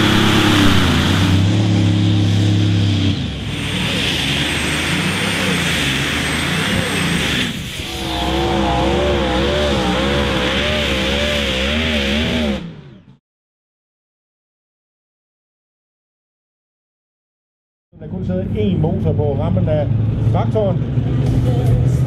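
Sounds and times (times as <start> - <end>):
tractor engines revving hard: 0.0 - 13.2, 18.2 - 22.0.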